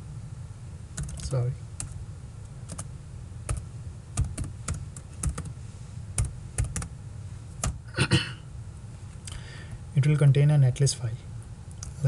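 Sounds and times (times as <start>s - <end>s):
keyboard keystrokes: 1.0s - 2.0s, 2.7s - 2.9s, 4.2s - 5.5s, 6.2s - 6.9s.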